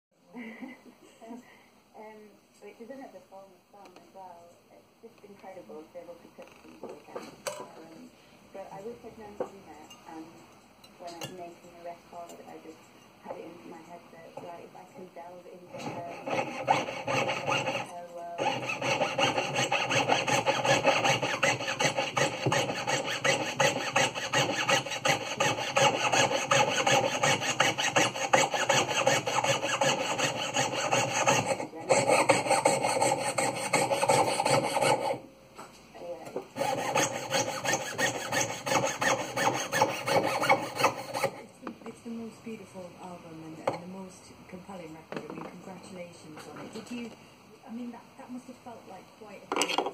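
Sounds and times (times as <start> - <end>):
piercing saw cutting metal: 15.7 - 35.2, 36.6 - 41.4.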